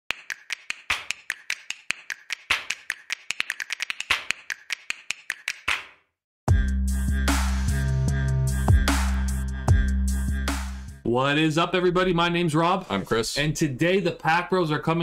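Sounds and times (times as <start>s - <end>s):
rapid sharp taps: 0.1s - 5.9s.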